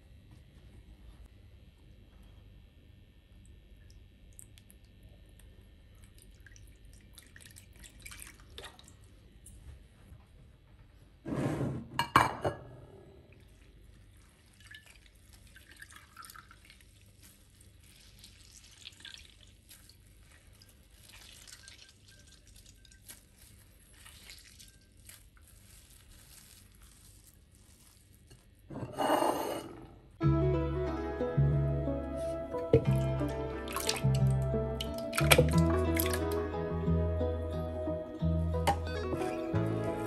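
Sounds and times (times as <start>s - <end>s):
water dripping into bowl: 6.1s - 8.9s, 18.4s - 23.2s, 32.8s - 36.3s.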